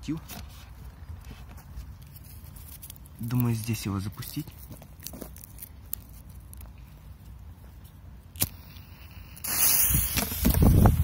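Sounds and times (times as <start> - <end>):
firecracker fuse hissing: 8.4 - 11.0.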